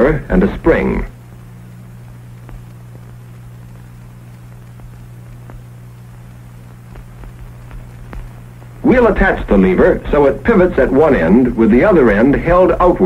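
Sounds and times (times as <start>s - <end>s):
film hiss: 0.0s - 13.0s
low hum: 0.0s - 13.0s
faint clicks: 1.1s - 9.6s.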